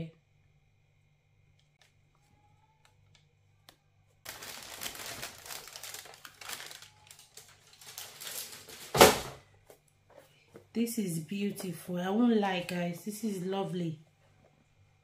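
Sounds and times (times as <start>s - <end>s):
packaging crinkling and rustling: 4.2s - 9.4s.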